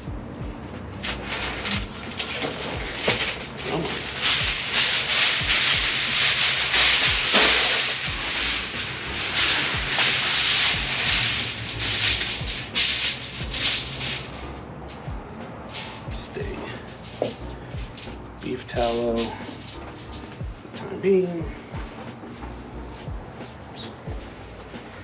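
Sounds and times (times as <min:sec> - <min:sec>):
aluminum foil crinkling: 0:01.0 - 0:14.4, 0:15.7 - 0:20.4.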